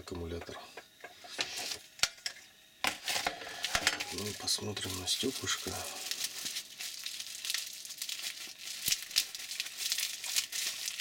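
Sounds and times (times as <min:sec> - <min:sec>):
bubble wrap crackling: 0:03.5 - 0:11.0.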